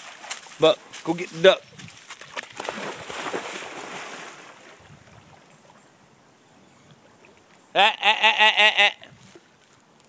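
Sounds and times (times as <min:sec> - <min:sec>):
faint water sloshing: 0:00.0 - 0:06.2.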